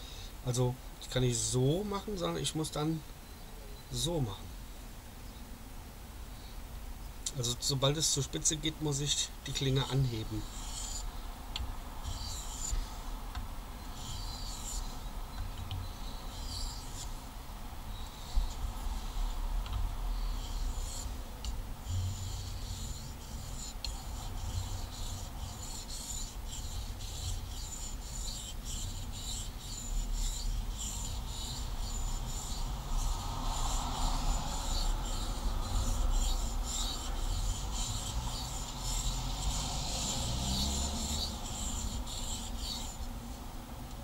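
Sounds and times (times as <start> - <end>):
knife scraping on whetstone: 21.9 - 43.1.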